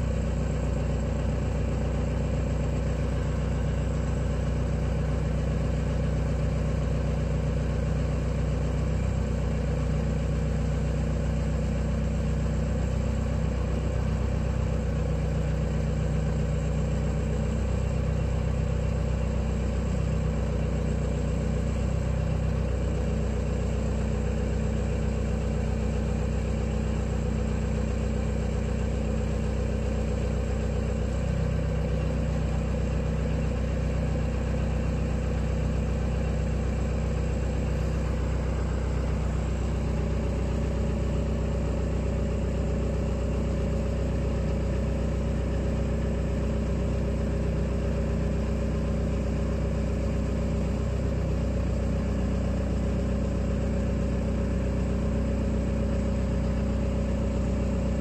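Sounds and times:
engine idling: 0:00.0 - 0:58.0.

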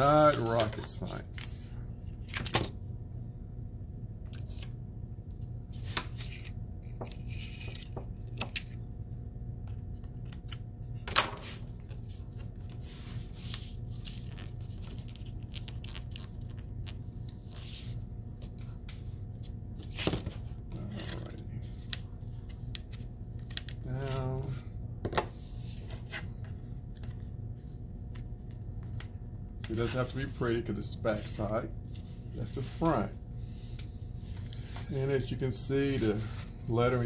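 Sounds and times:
metal tape crinkling and rustling: 0:11.2 - 0:24.4.

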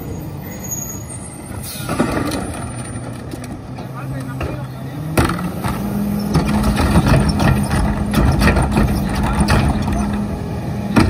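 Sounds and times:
trash cart knocking and clattering: 0:01.8 - 0:03.6, 0:04.3 - 0:10.2
diesel truck engine revving: 0:03.5 - 0:11.0.

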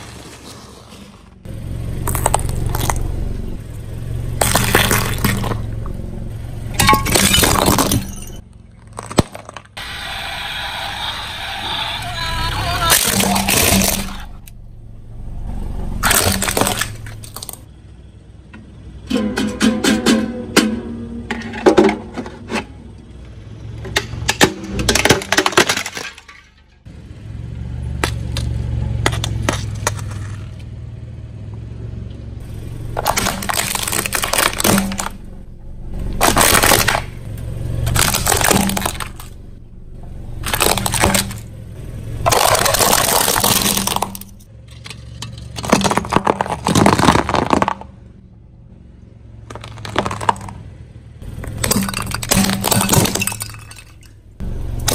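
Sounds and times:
low rumble of rolling car: 0:00.0 - 0:54.9
ukulele strings twanging: 0:19.1 - 0:21.4.

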